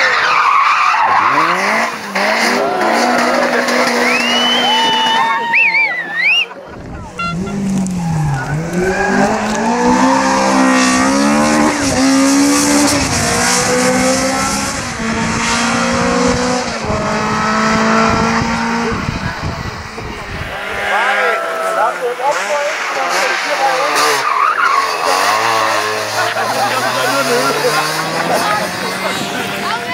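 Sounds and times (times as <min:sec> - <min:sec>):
rally car engine revving past: 0:07.4 - 0:29.9.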